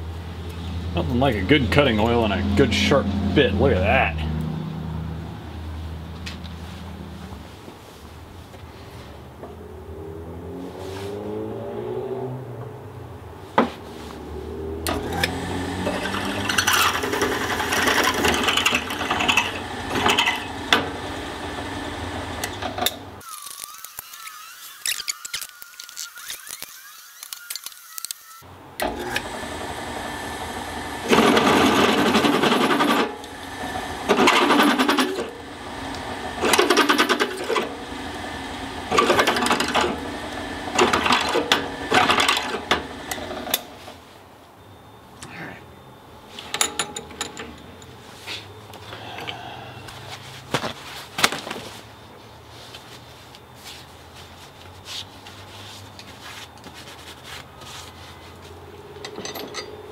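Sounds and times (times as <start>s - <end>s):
drill press cutting metal: 14.9s - 43.7s.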